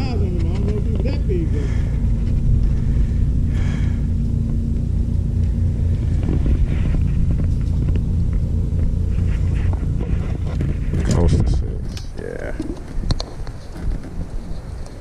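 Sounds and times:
faint steady hum: 0.0 - 15.0
wind buffeting the microphone: 0.0 - 15.0.

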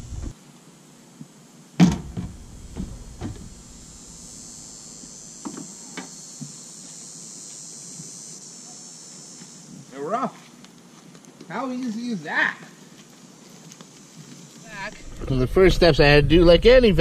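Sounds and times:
light thumps and clicks: 0.0 - 0.3, 1.8 - 3.8.

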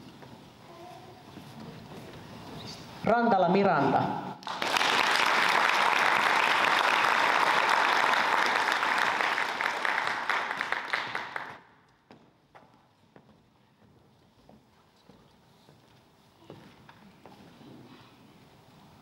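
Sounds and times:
audience applauding: 4.4 - 11.7.

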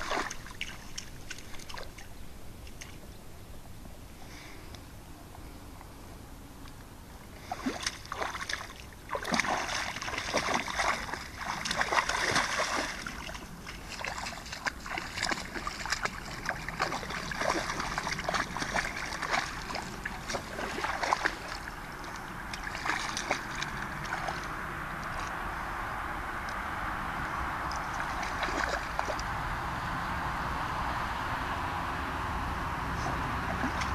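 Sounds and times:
dogs splashing in water: 0.0 - 2.1, 7.4 - 25.3, 27.7 - 29.4, 33.0 - 33.9.

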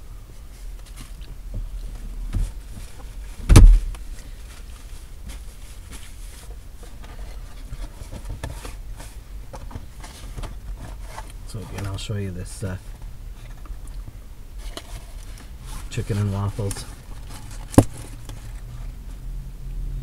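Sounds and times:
glove box lid thump: 3.4 - 3.9
paper and packaging handling: 14.6 - 18.8.

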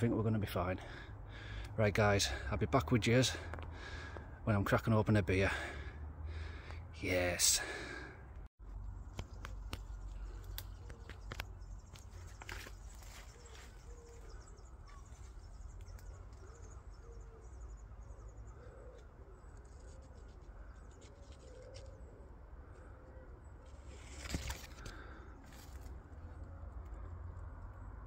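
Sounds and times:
faint birdsong: 0.0 - 28.0
footsteps through undergrowth: 9.0 - 16.4
vegetation snapping: 9.1 - 13.1.

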